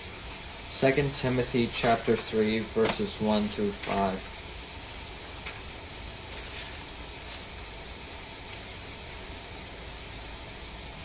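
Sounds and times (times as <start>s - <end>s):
background hiss: 0.0s - 11.0s.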